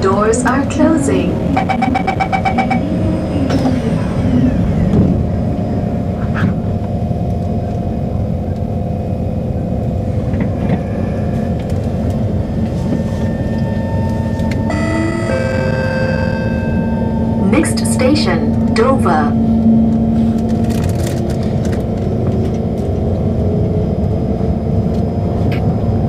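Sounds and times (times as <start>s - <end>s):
train rumble and hum: 0.0s - 26.0s
door-closing warning beeps: 1.6s - 2.8s, 14.1s - 17.6s
announcement chime: 14.7s - 18.7s.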